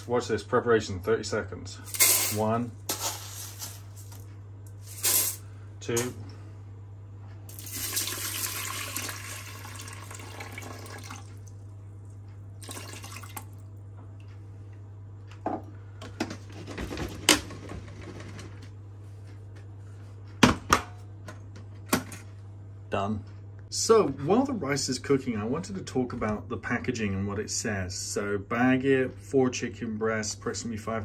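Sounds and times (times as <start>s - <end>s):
water poured over rice: 7.5s - 11.3s.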